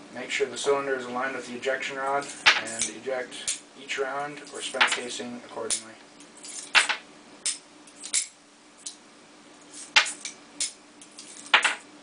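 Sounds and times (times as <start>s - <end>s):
cartridges dropping onto table: 6.5s - 7.0s, 11.3s - 11.8s.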